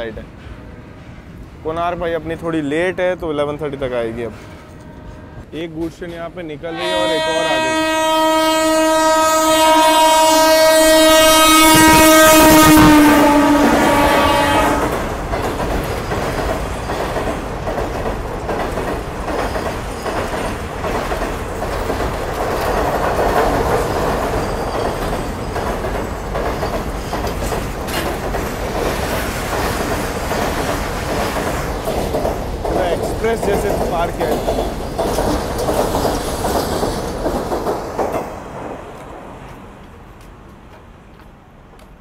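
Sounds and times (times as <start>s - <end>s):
train horn: 3.7s - 5.6s, 6.7s - 15.0s.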